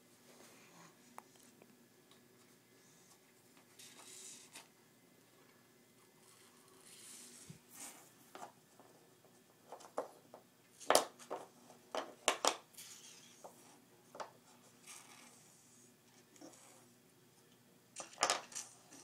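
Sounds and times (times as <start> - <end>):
wooden puzzle pieces clacking: 10.8 - 12.6, 18.0 - 18.6.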